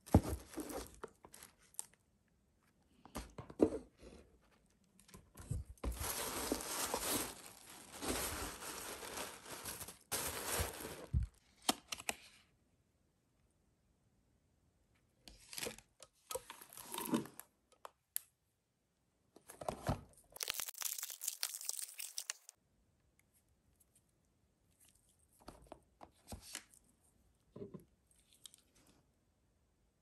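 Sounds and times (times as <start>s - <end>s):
paper and plastic crinkling: 5.4s - 11.4s, 20.4s - 22.5s.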